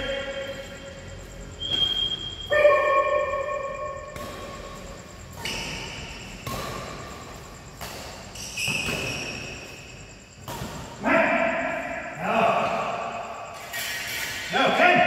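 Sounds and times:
short high shoe squeaks: 0:01.6 - 0:03.0, 0:08.2 - 0:10.1
racket hitting shuttlecock: 0:02.6 - 0:11.0.

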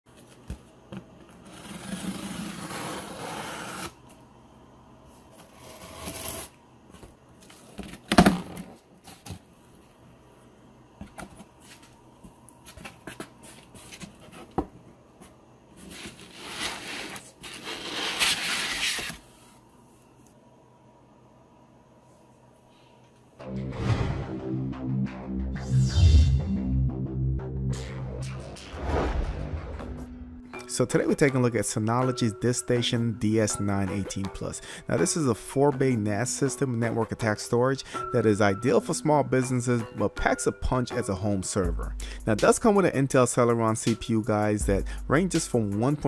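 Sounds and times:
cardboard scraping and rustling: 0:01.4 - 0:04.0, 0:05.4 - 0:06.5, 0:15.8 - 0:19.4.

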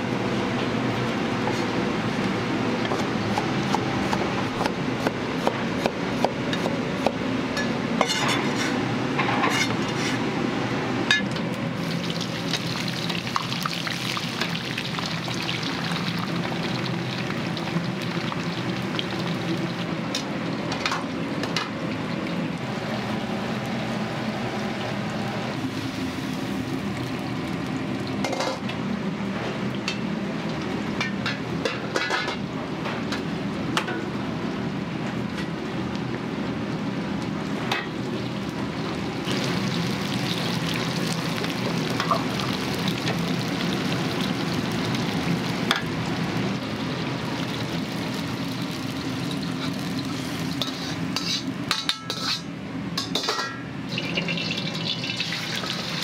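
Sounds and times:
food sizzling in a pan: 0:11.8 - 0:19.9, 0:39.0 - 0:52.5, 0:53.2 - 0:56.0
metal utensils clinking: 0:50.6 - 0:53.6.

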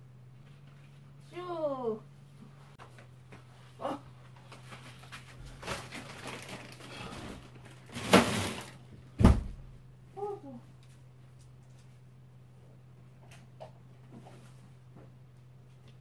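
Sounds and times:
steady low hum: 0:00.0 - 0:16.0
rustling: 0:04.3 - 0:08.9.

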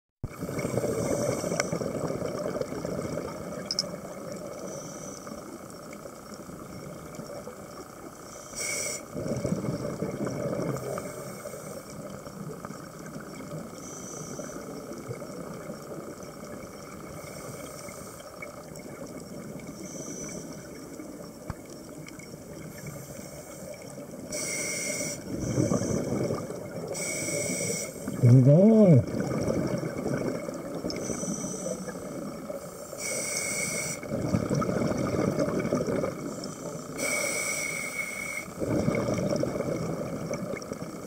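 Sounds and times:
scuba regulator breathing underwater: 0:00.3 - 0:02.0, 0:08.3 - 0:09.6, 0:24.3 - 0:29.7, 0:30.9 - 0:39.2
steady underwater hiss: 0:00.3 - 0:41.0
bubbly exhalations: 0:28.1 - 0:30.8, 0:34.1 - 0:36.2, 0:38.6 - 0:40.5.

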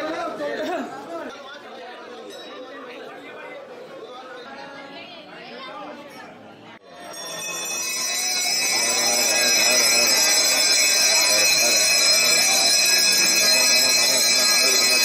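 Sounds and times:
temple bells ringing: 0:06.9 - 0:15.0.

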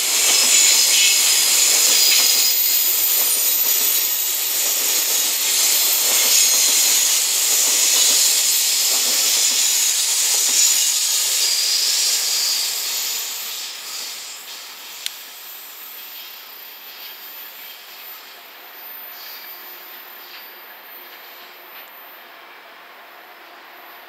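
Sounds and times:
train wheels hissing on rails: 0:00.0 - 0:24.0.

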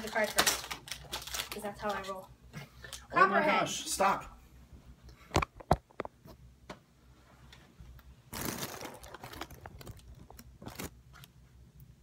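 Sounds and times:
cardboard packaging crinkling and tearing: 0:00.0 - 0:02.1, 0:08.3 - 0:11.3.

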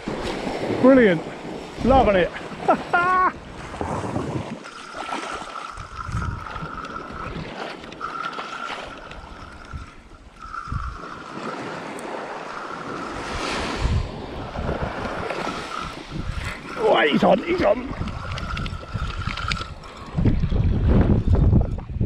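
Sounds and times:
wind buffeting the microphone: 0:00.0 - 0:04.7, 0:05.3 - 0:22.0
small surf washing onto beach: 0:00.0 - 0:19.8
spinning reel whirring: 0:04.6 - 0:13.6, 0:15.2 - 0:20.2.

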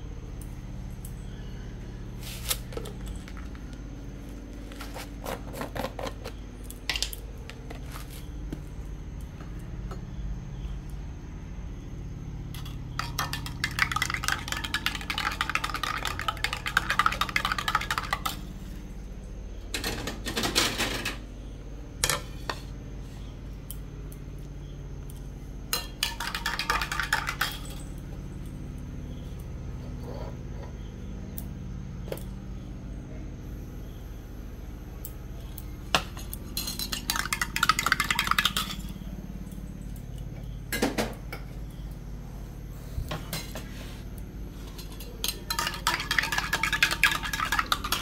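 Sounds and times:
steady low hum: 0:00.0 - 0:48.0
metal spoon clinking in tumbler: 0:36.2 - 0:39.0.

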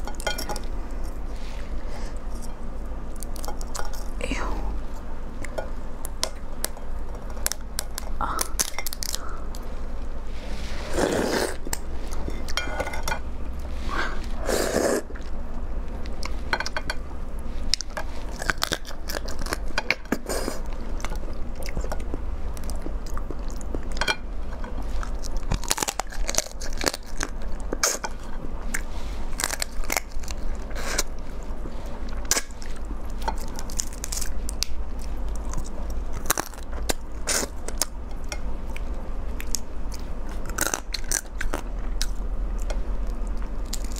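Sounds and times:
crab shell crunching: 0:17.8 - 0:43.9.

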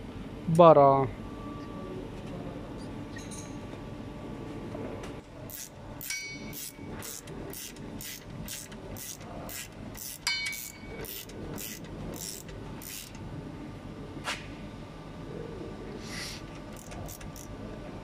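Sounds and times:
ratchet pawl clicks: 0:05.5 - 0:13.2, 0:16.7 - 0:17.5
metal clinking against caliper: 0:06.0 - 0:06.7, 0:10.2 - 0:11.1.

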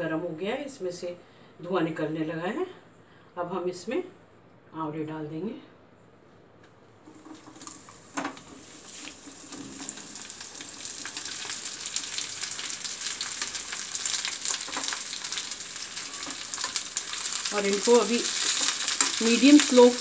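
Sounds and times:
slices sizzling in hot oil: 0:07.1 - 0:20.0.

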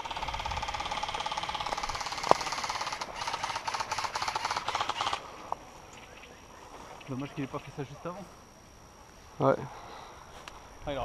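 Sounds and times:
airsoft gun full-auto burst: 0:00.0 - 0:05.3.

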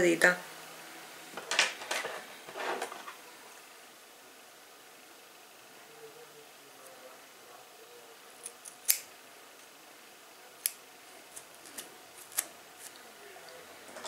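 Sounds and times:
scissors snipping hair: 0:08.4 - 0:09.1, 0:10.6 - 0:13.0.

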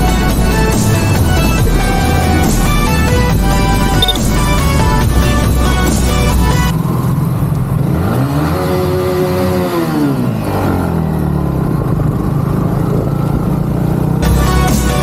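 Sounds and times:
motorcycle engine revving: 0:00.0 - 0:15.0
road noise: 0:00.0 - 0:15.0.

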